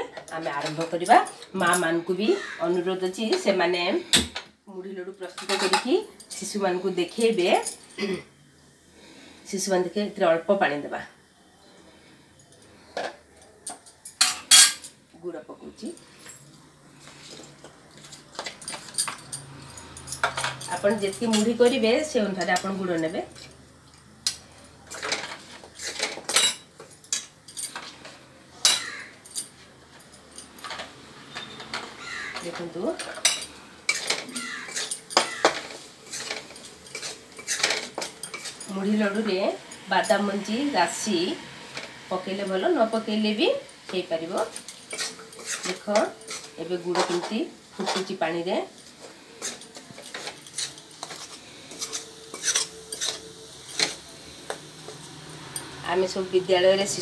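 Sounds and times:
steel spatula clinking on bowls: 5.2s - 7.9s, 12.4s - 15.0s, 17.4s - 40.3s, 41.7s - 57.0s
metal spoon scraping a wok: 24.9s - 26.5s, 30.7s - 48.2s, 48.9s - 57.0s.

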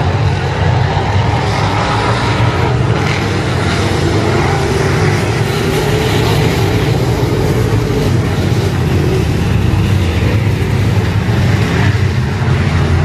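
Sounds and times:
race car engines droning: 0.0s - 13.0s.

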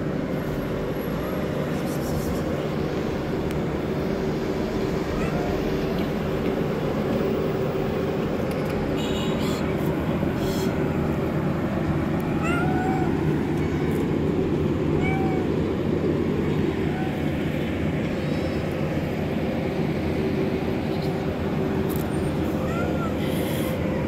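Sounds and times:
low rumble of traffic: 0.0s - 24.0s
cat meowing: 5.0s - 6.1s, 12.2s - 14.0s, 14.8s - 15.6s, 16.8s - 17.4s, 22.5s - 24.0s.

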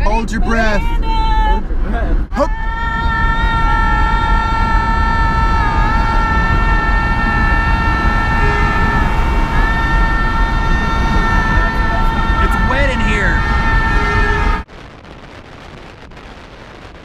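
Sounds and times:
road rumble: 0.0s - 17.0s
horn-like high tone: 6.3s - 14.6s.

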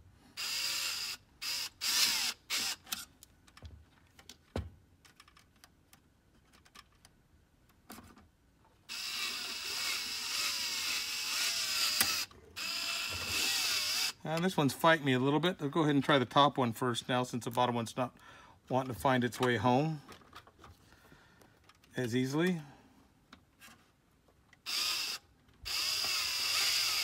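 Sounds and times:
electric screwdriver whining: 0.4s - 3.1s, 8.9s - 14.2s, 24.6s - 27.0s.

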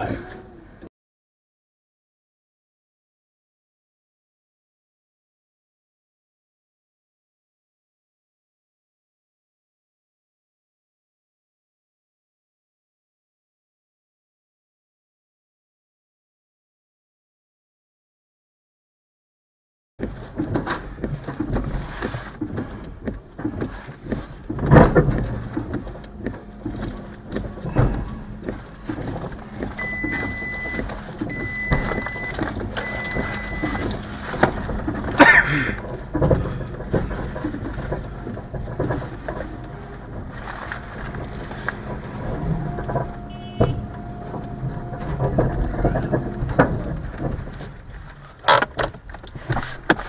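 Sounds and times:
car engine and road rumble: 0.0s - 0.9s, 20.0s - 50.0s
electronic beeps: 29.5s - 34.3s.

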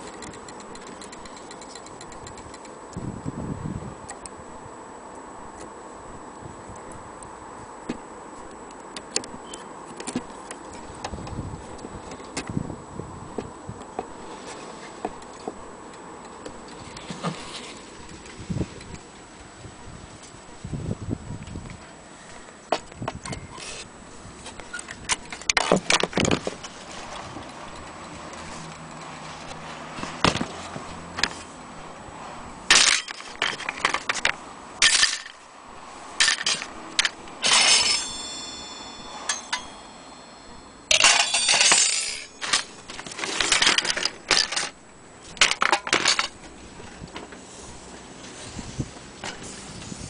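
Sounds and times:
clock parts clicking and clattering: 0.0s - 2.8s, 36.2s - 40.0s, 40.9s - 44.8s
metal ringing: 36.2s - 44.7s.

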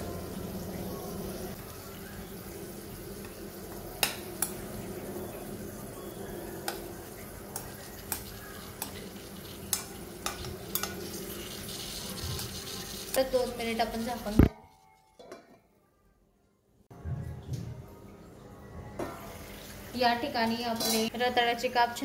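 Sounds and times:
food frying: 0.0s - 14.4s
metal spoon scraping frying pan: 20.8s - 21.1s.

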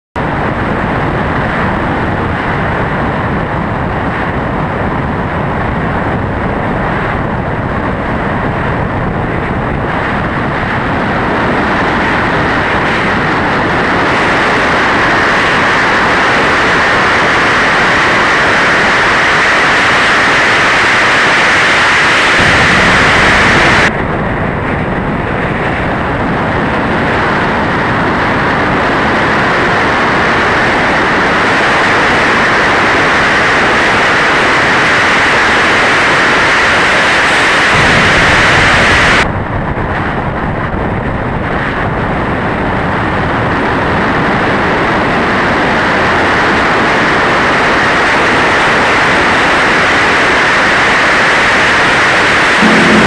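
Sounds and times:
car driving at speed: 49.3s - 53.0s.

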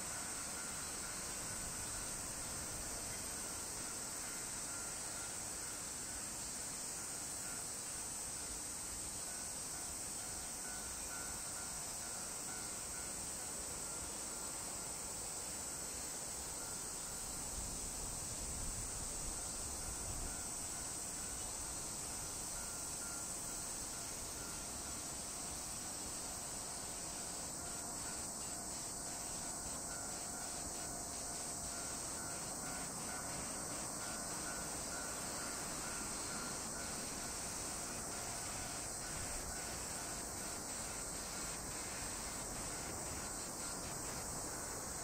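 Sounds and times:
high-pitched insect chorus: 0.0s - 45.0s
low background noise: 0.0s - 45.0s.

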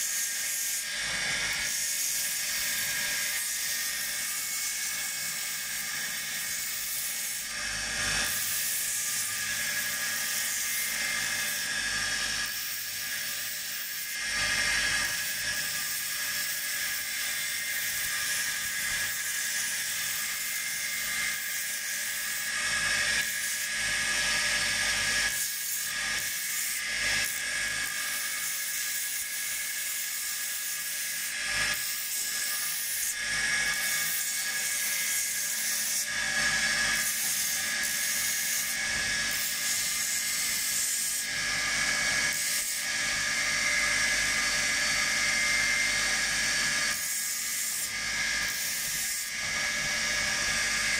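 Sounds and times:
sanding belt hissing against wood: 0.0s - 7.6s, 28.0s - 41.3s.

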